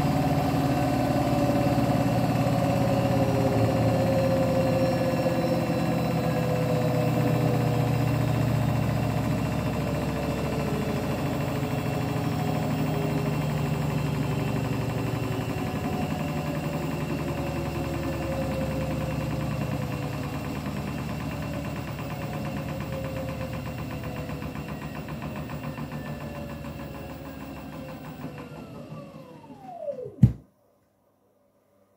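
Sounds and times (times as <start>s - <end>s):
washing machine motor whine: 0.0s - 30.4s
sharp knock: 30.2s - 30.4s.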